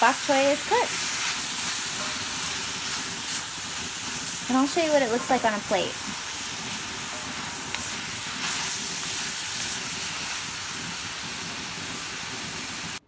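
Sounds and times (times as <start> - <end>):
vegetables sizzling in a wok: 0.0 - 13.0
wooden spatula tapping and scraping: 4.0 - 8.8.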